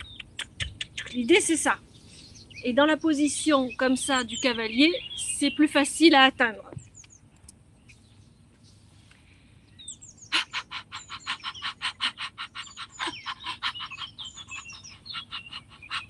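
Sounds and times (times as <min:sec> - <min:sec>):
birds chirping: 0:00.0 - 0:16.0
rapid panting breaths: 0:10.4 - 0:16.0.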